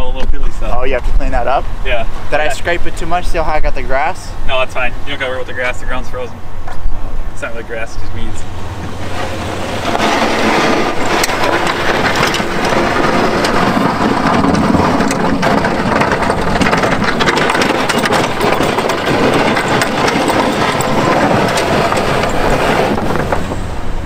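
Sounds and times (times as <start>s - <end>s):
truck engine running: 1.4s - 24.0s
plow blade scraping snow: 7.5s - 24.0s
snow crunching and crackling: 8.7s - 23.6s.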